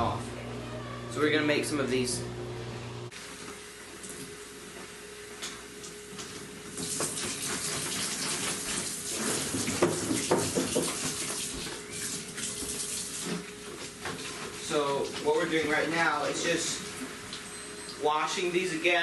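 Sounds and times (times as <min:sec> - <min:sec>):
plastic jug knocking in sink: 0:09.6 - 0:11.2.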